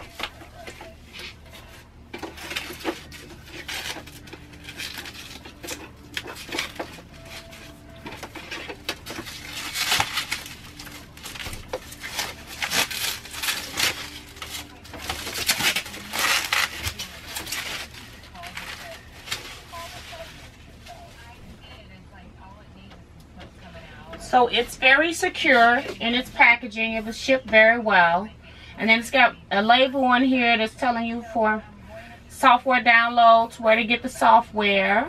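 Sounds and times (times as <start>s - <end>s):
packaging wrap rustling: 0.0s - 21.5s.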